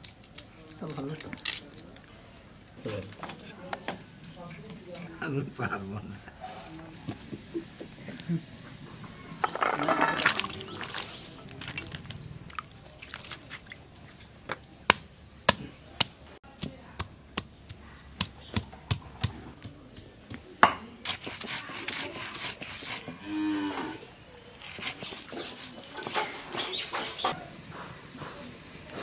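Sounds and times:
stone roller scraping: 9.4s - 12.4s, 21.0s - 23.2s, 24.6s - 27.4s.

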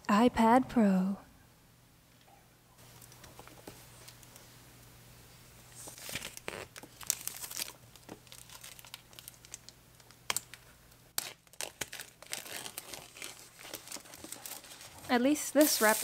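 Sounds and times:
plastic shrink-wrap tearing and crinkling: 5.8s - 16.0s.

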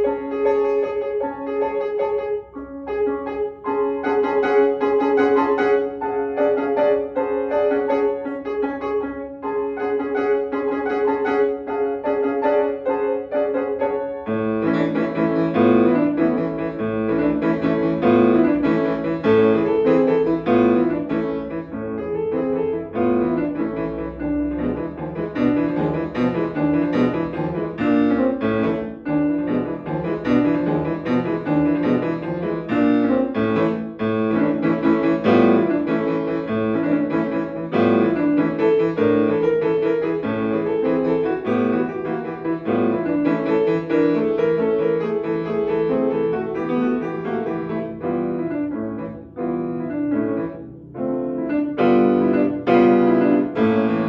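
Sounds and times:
grand piano playing: 0.0s - 54.0s.

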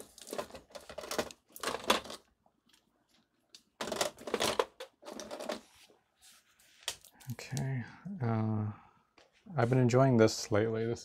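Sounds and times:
paint tubes rustling and clicking: 0.0s - 7.4s.

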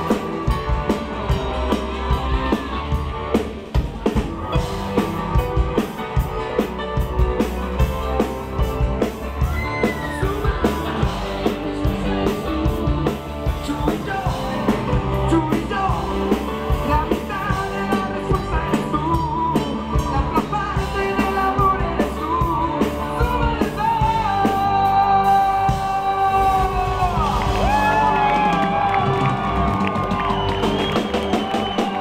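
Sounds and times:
drums: 0.0s - 32.0s
live rock band: 0.0s - 32.0s
man singing: 9.8s - 27.6s.

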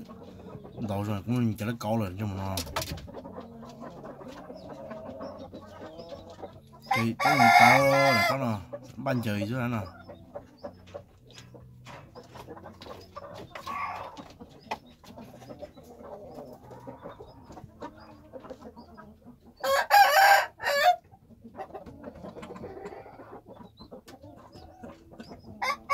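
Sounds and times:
chickens clucking: 0.0s - 25.9s
rooster crowing: 19.6s - 21.0s.

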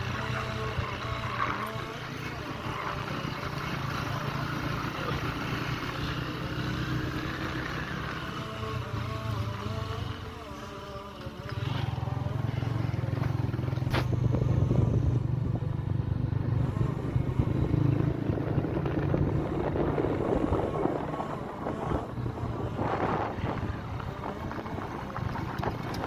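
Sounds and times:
road and wind noise: 0.0s - 26.0s
vehicle engine running: 0.0s - 26.0s.

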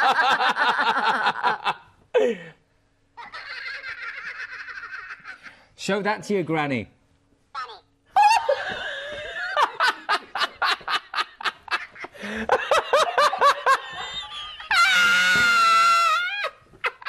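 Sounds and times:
hearty human laughter: 8.2s - 17.0s.

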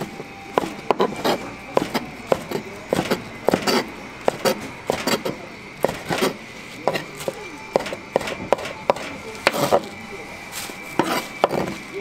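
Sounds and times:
kitchen utensils and dishes clinking: 0.0s - 9.9s
faint high hum: 0.0s - 12.0s.

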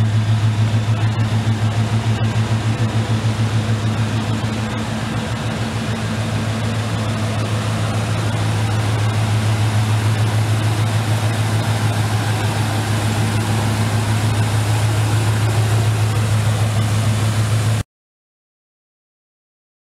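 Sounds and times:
truck engine idling: 0.0s - 17.8s.

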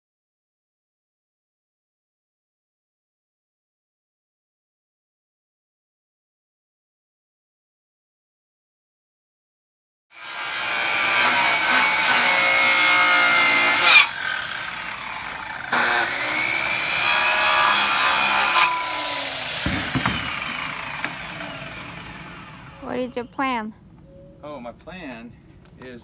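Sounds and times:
circular saw cutting wood: 10.1s - 23.1s.

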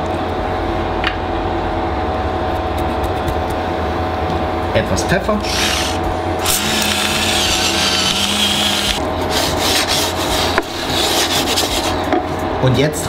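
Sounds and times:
pepper mill grinding: 5.5s - 9.0s.

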